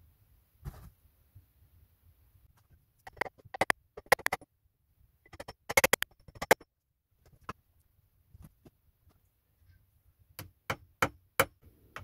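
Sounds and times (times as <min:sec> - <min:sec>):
hammer driving nail into wood: 0:05.3 - 0:06.6.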